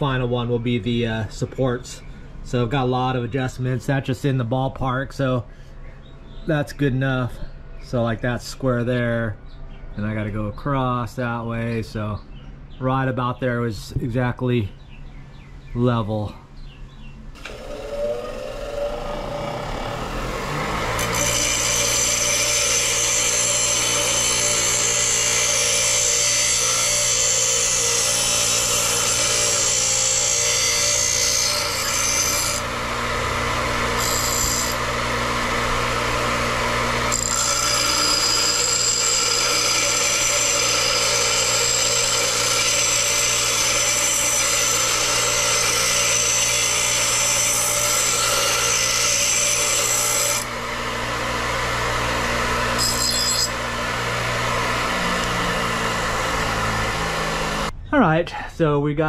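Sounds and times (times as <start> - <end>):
bench grinder motor hum: 17.4 - 57.7.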